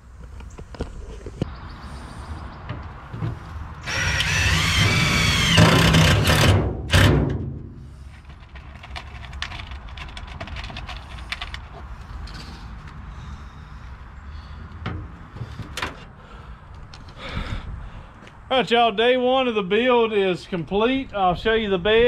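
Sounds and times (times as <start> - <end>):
cordless drill driving screw: 3.8 - 7.1.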